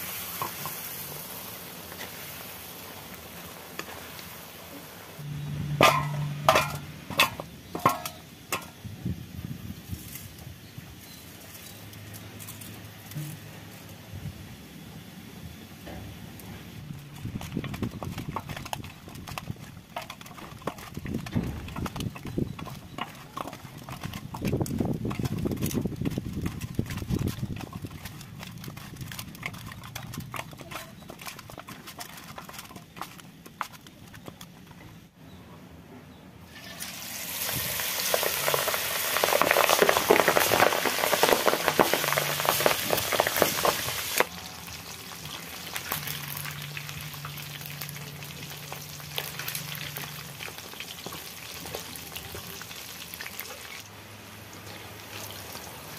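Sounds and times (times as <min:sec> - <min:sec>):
food deep-frying sizzling: 0:00.0 - 0:08.8, 0:36.5 - 0:55.9
hands mixing food in steel bowl: 0:16.9 - 0:35.0, 0:38.0 - 0:53.7.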